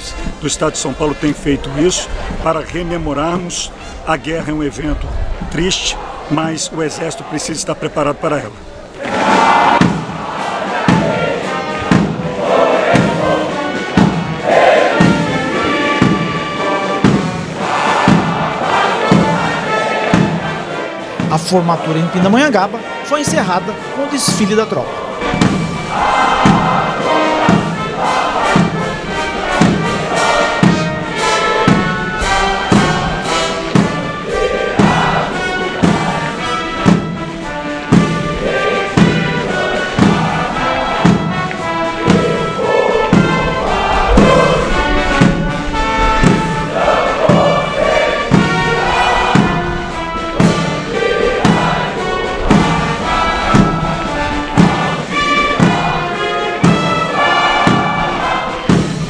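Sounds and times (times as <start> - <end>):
brass band playing a march: 0.0 - 4.2, 5.6 - 59.0
bass drum beat: 9.2 - 16.4, 24.3 - 59.0.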